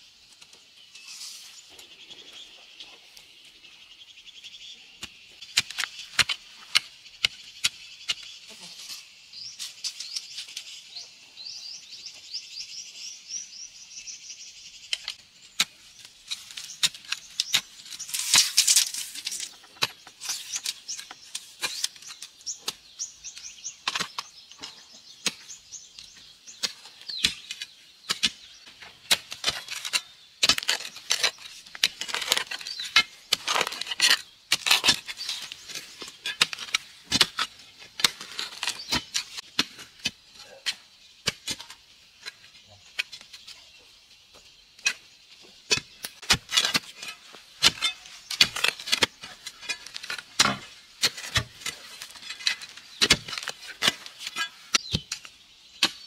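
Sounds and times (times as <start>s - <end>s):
spades digging into soil: 14.9s - 43.6s, 44.8s - 56.0s.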